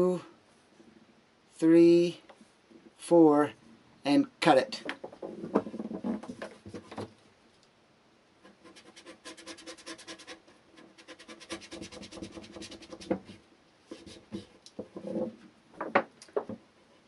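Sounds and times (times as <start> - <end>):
knife sawing through rope: 8.5 - 13.0.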